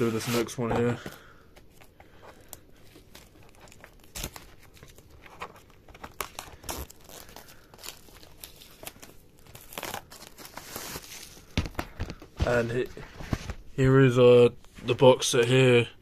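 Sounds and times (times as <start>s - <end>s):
plastic packaging crinkling and tearing: 1.6s - 13.7s.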